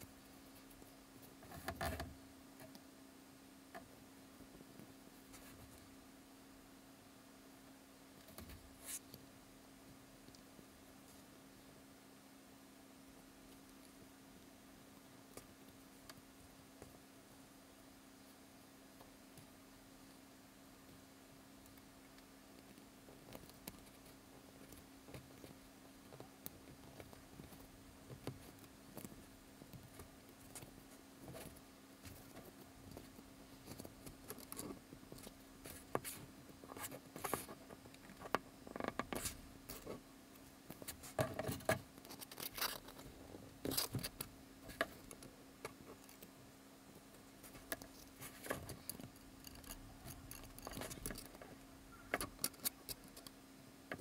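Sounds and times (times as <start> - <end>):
faint steady hum: 0.0 - 54.0
wire clicking and scraping: 0.5 - 2.8, 21.6 - 46.3, 47.4 - 54.0.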